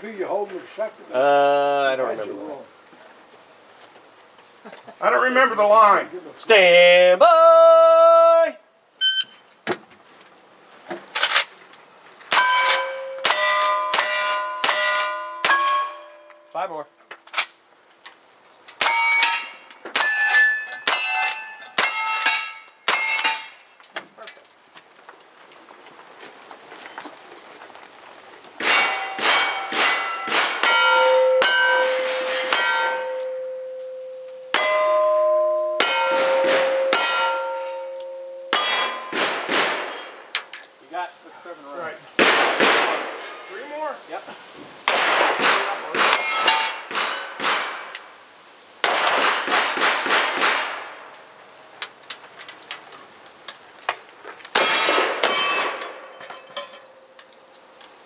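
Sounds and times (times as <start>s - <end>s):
shot timer beep: 9.0s - 9.4s
steel targets ringing: 12.3s - 16.6s, 18.8s - 23.6s, 28.6s - 40.2s, 45.4s - 47.5s, 54.6s - 57.2s
gunshots: 28.6s - 30.9s, 35.8s - 37.3s, 38.5s - 40.2s, 42.2s - 43.2s, 44.8s - 47.9s, 48.8s - 51.0s, 54.6s - 56.0s.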